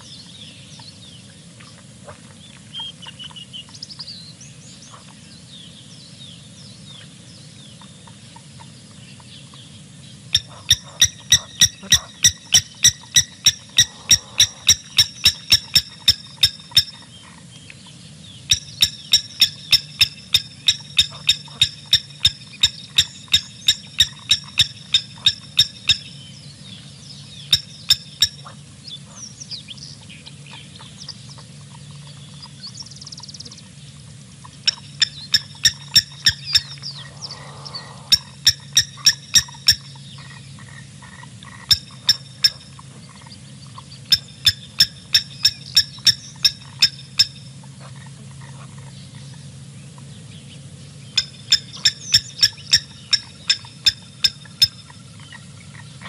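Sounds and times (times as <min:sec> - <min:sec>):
steady low hum: 0:00.0 - 0:56.0
animal calling in sharp clicks: 0:10.4 - 0:17.0, 0:34.7 - 0:42.6, 0:51.2 - 0:55.0.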